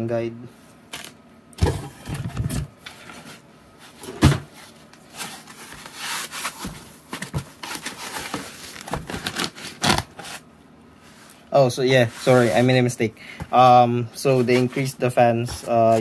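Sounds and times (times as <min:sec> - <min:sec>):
cardboard and foam rubbing: 0:05.1 - 0:10.5, 0:12.0 - 0:12.7.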